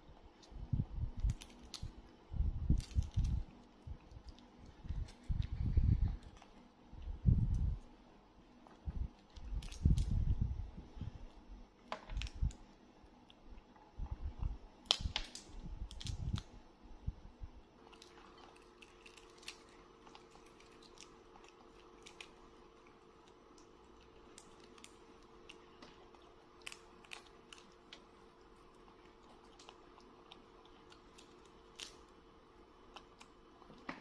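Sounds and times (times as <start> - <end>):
faint steady hum: 0.0 - 34.0
peanut shells cracking: 0.4 - 2.1, 2.7 - 5.4, 9.2 - 10.2, 14.8 - 16.5, 17.8 - 34.0.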